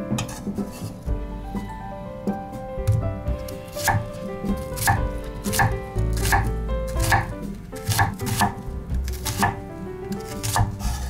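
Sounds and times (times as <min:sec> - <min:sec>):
knife chopping on cutting board: 0:03.8 - 0:09.6, 0:10.2 - 0:11.0.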